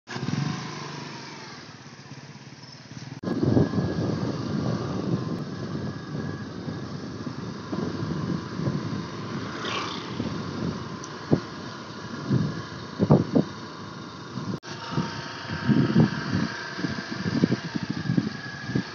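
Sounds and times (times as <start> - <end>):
motor scooter engine: 0.1 - 18.9
wind on microphone: 3.2 - 13.6, 14.3 - 18.9.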